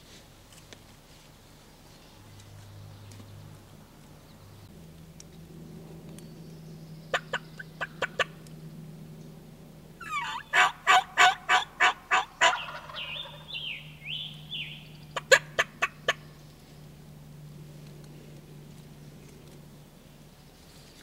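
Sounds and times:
turkey calling: 7.1s - 8.4s, 10.0s - 16.3s.

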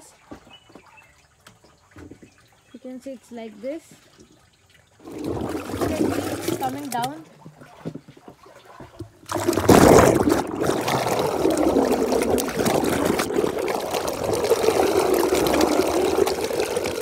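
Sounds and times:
liquid pouring and splashing: 3.9s - 17.0s.

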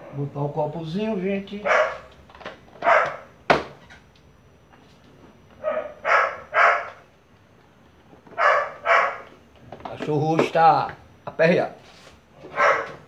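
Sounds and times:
dog barking: 1.6s - 2.1s, 2.8s - 3.3s, 5.6s - 7.0s, 8.4s - 9.3s, 12.5s - 13.0s.

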